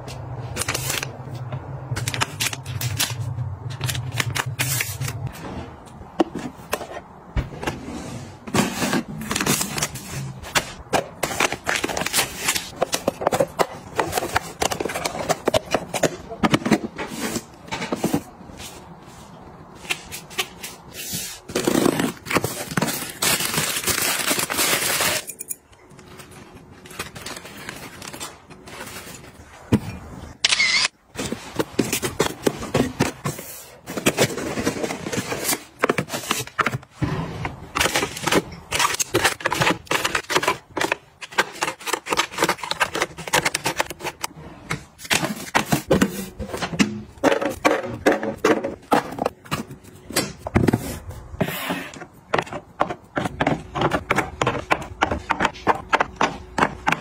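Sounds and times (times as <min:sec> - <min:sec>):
plastic packaging rustling: 0:08.4 - 0:18.8, 0:20.2 - 0:29.7, 0:31.1 - 0:44.3
boxes set down and slid: 0:44.3 - 0:53.5.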